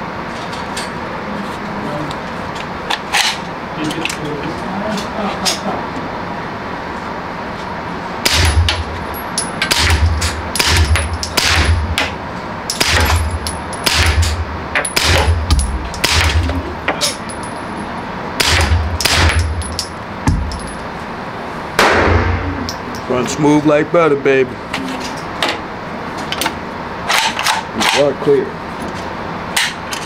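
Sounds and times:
suppressed pistol shots: 8.2s - 8.7s, 10.6s - 11.8s, 15.0s - 16.4s, 18.4s - 19.5s, 21.8s - 22.5s.

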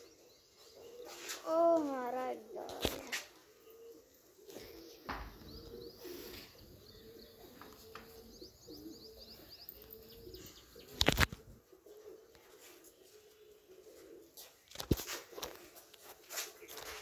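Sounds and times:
pigeons cooing: 0.0s - 17.0s
small birds chirping: 0.0s - 17.0s.

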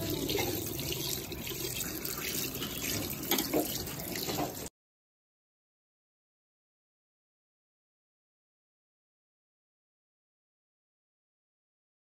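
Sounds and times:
tap water splashing in basin: 0.0s - 4.7s.

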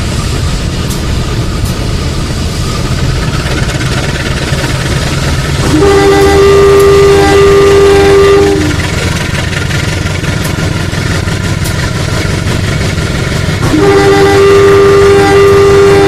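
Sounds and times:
toy train two-tone horn: 5.6s - 8.8s, 13.6s - 16.0s.

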